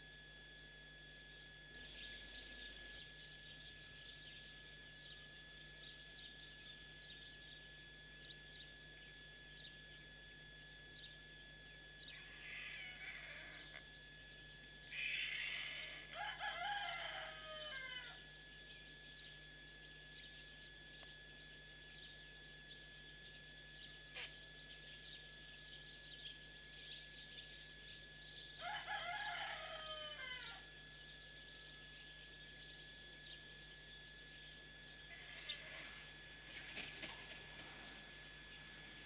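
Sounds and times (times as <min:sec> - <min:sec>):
faint rooster crowing: 0:12.0 - 0:13.9, 0:14.9 - 0:18.6, 0:28.4 - 0:32.5, 0:35.0 - 0:36.2.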